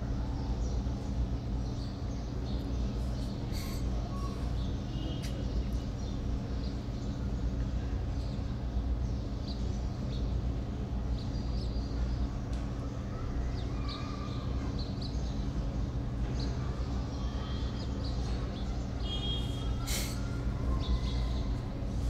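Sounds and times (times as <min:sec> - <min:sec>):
low background hum: 0:00.0 - 0:22.0
short bird calls: 0:19.0 - 0:21.3.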